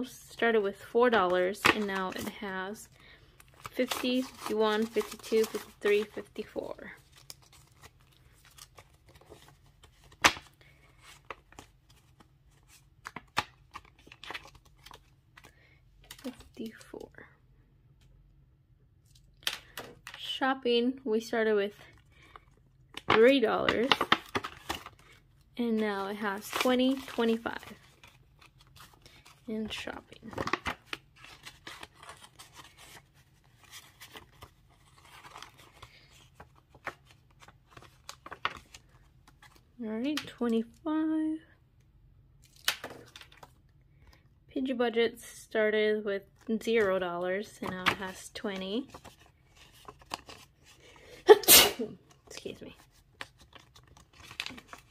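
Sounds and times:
banknotes rustling and flicking: 1.1s - 17.0s, 22.1s - 39.6s
plastic sleeves crinkling: 1.1s - 17.1s, 21.8s - 39.8s, 46.4s - 54.9s.

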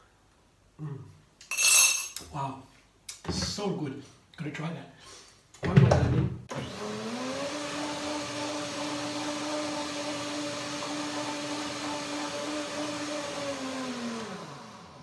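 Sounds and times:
blender motor running: 6.5s - 15.0s.

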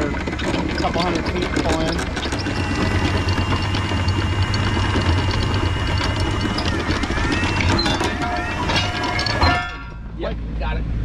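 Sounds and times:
winch motor hum: 0.0s - 10.1s
chain links clicking: 0.4s - 10.0s.

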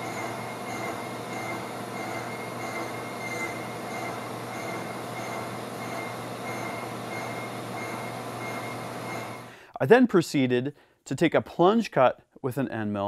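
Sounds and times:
pulsing high squeal: 0.0s - 9.5s
slitting saw cutting metal: 0.0s - 9.5s.

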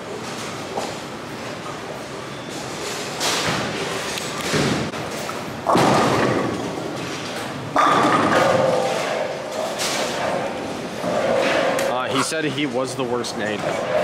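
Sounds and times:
bowling balls thudding: 3.4s - 12.0s
bowling pins crashing: 5.6s - 7.1s, 7.7s - 11.8s.

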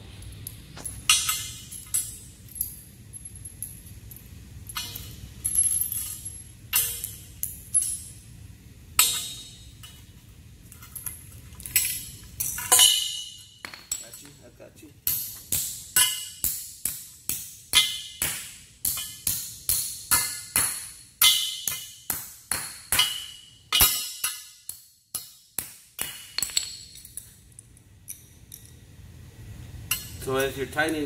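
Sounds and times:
faint metal clinks: 0.2s - 8.3s, 26.4s - 28.9s.

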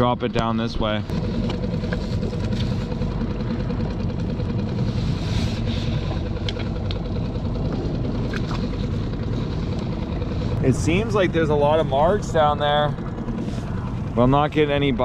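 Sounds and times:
outboard motor idling: 0.0s - 15.0s.

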